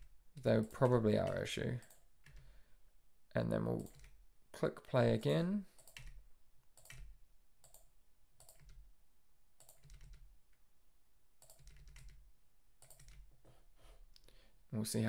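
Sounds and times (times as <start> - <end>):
computer keyboard keystrokes: 3.8 - 4.2, 5.8 - 8.8, 9.6 - 10.3, 11.4 - 12.2, 12.8 - 13.3.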